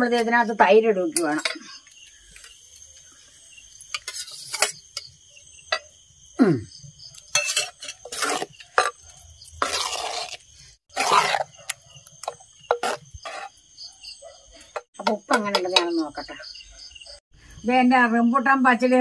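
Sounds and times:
spoon clinking against clay pot: 0:01.2 - 0:01.8, 0:07.2 - 0:09.0
spoon scraping swishes: 0:07.4 - 0:11.8.

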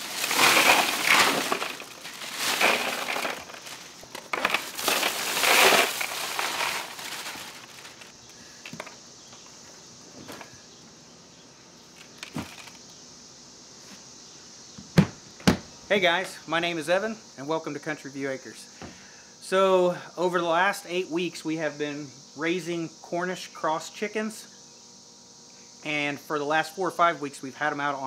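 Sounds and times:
ice cubes pouring and rattling: 0:00.0 - 0:08.1.

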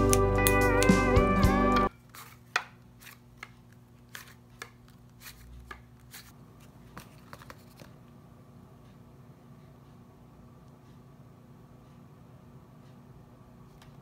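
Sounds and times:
slide guitar music: 0:00.0 - 0:01.9.

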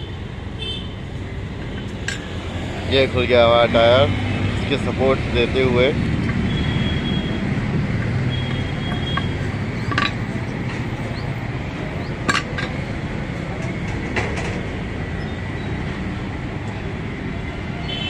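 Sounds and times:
metal levers clinking on rim: 0:08.5 - 0:10.6, 0:12.0 - 0:12.8.

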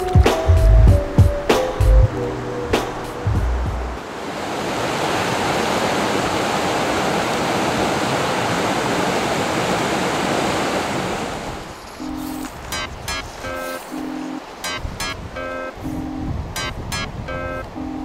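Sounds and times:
river rushing over boulders: 0:03.8 - 0:15.4.

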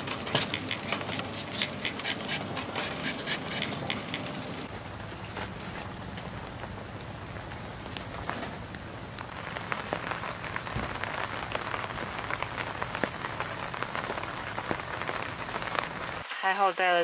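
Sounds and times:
rain on fabric canopy: 0:04.7 - 0:16.4.

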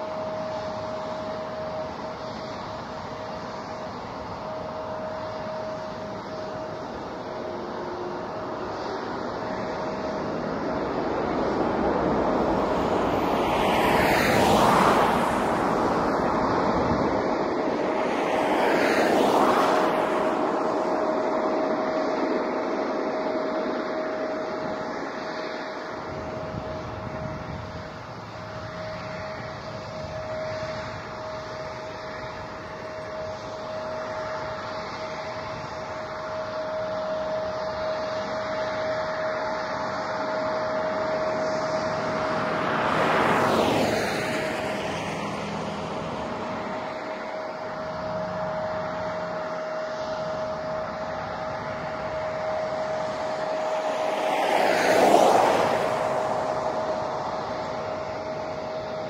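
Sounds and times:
jet engines whining: 0:00.0 - 0:59.0
vehicle passing by: 0:04.6 - 0:59.0.

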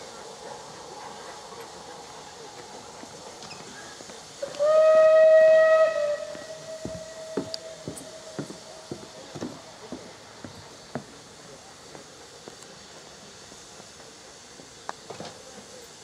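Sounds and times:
steam locomotive whistle: 0:04.4 - 0:08.6.

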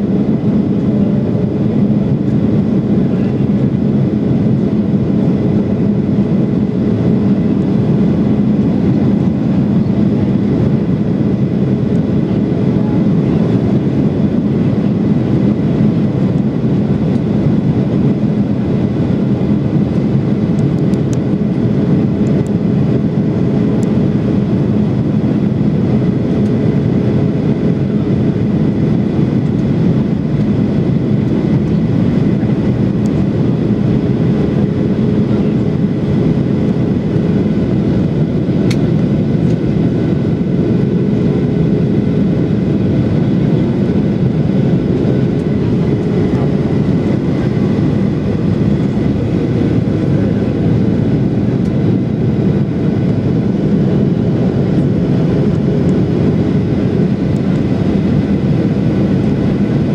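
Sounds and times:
jet engine cabin rumble: 0:00.0 - 0:59.9
steady humming tone: 0:00.0 - 0:59.9.

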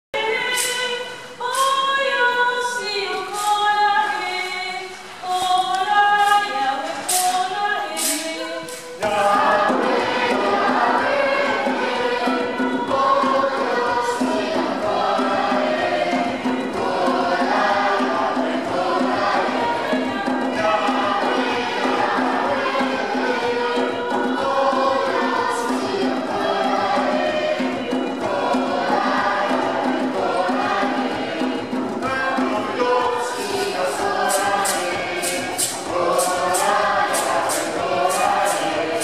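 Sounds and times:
children's choir singing: 0:00.2 - 0:39.0.

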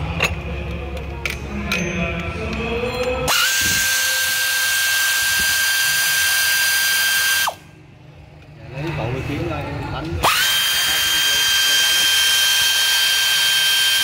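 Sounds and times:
power tool whining: 0:03.3 - 0:07.6, 0:10.2 - 0:14.0.

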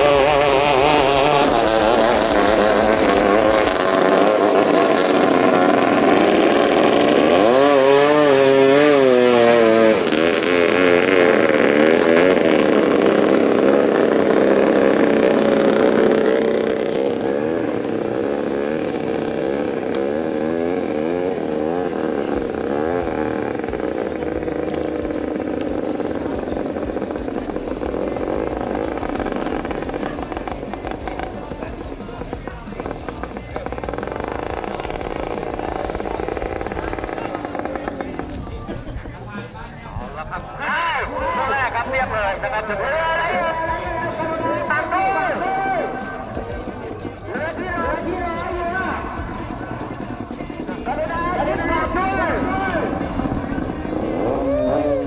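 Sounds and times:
boat passing close: 0:00.0 - 0:55.0
speedboat engines running flat out: 0:00.0 - 0:55.0.

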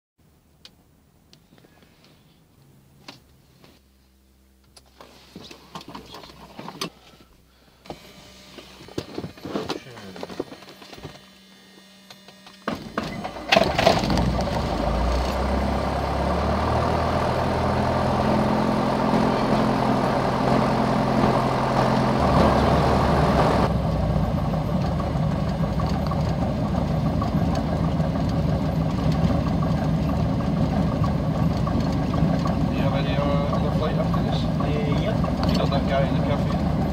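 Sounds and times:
aircraft engine starting and running: 0:12.5 - 0:36.9.

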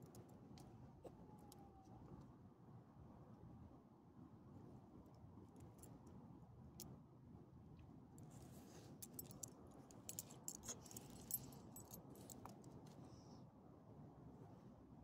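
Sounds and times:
dog collar tags jingling: 0:09.0 - 0:12.6.

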